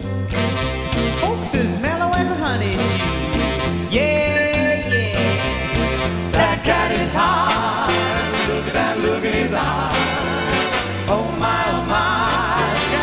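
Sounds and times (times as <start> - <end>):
male a cappella group singing: 3.9 - 13.0.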